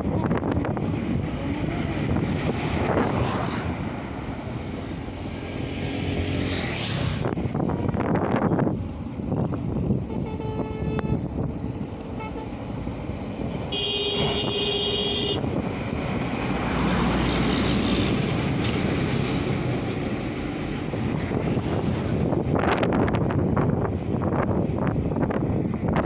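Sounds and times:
road traffic rumble: 0.0s - 26.0s
vehicle horn blasts: 10.1s - 11.3s, 13.7s - 15.4s.

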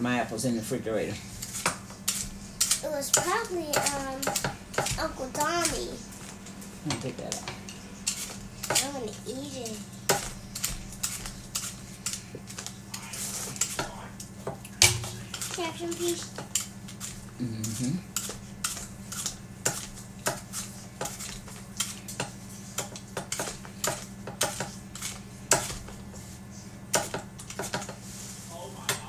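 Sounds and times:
steady low hum: 0.0s - 29.0s
blade scraping apples: 1.0s - 6.0s, 7.6s - 14.0s, 14.8s - 26.3s.

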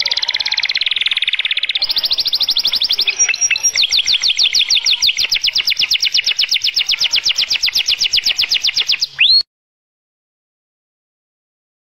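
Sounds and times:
canary singing rolling trill: 0.0s - 9.5s.

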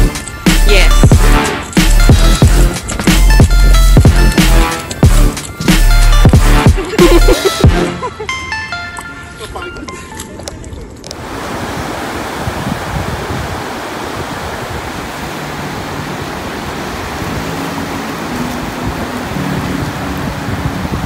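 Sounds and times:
ocean surf breaking: 11.2s - 21.0s.

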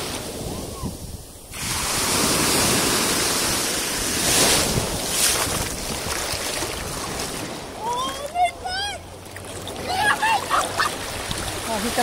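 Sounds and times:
wind on microphone: 0.0s - 7.6s
small waves washing over sand: 0.0s - 12.0s.

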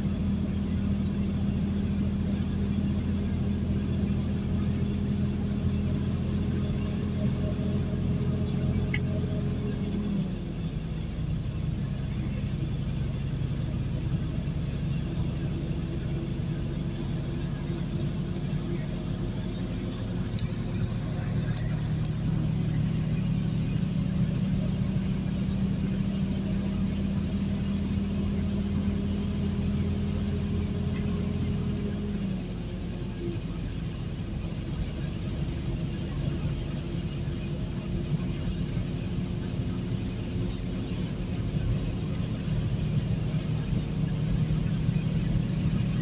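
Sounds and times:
road noise: 0.0s - 46.0s
truck engine droning: 0.0s - 46.0s.

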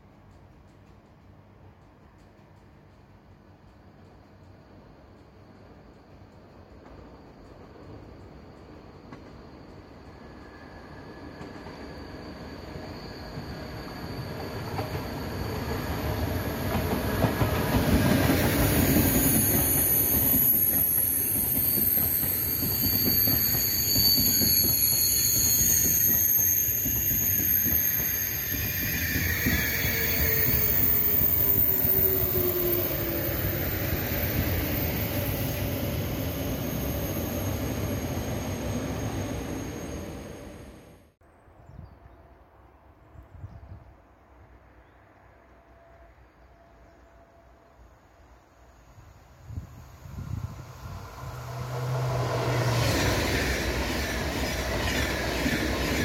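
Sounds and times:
high-speed train passing: 0.0s - 41.2s, 42.0s - 56.0s
high whistling tones: 18.5s - 40.9s.

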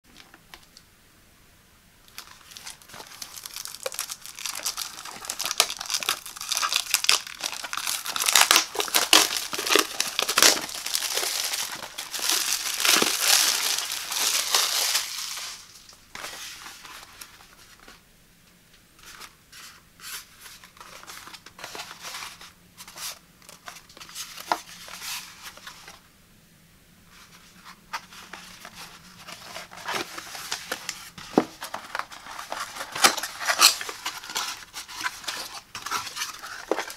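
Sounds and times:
shrink-wrap tearing and crinkling: 2.1s - 16.4s, 28.4s - 36.9s.

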